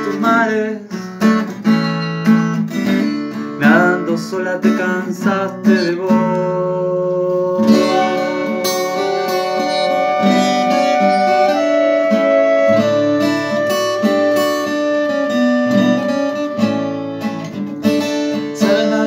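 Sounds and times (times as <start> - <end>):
strummed acoustic guitar: 0.0 - 19.0
flute: 7.0 - 17.6
violin: 7.7 - 17.1.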